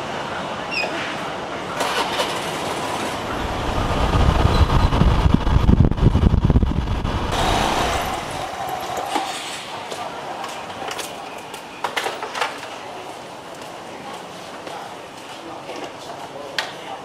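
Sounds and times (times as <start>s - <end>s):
market ambience: 0.0s - 17.0s
street noise: 0.0s - 17.0s
scooter engine running: 1.8s - 8.6s
wind buffeting on microphone: 3.2s - 8.5s.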